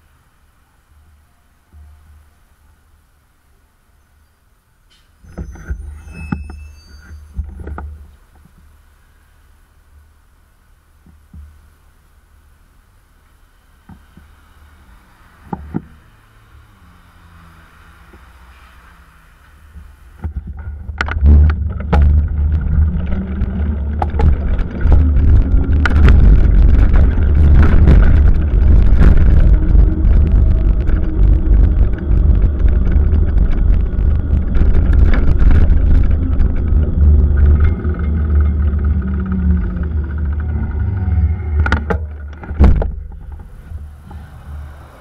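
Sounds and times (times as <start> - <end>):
bicycle road rumble: 0.0 - 45.0.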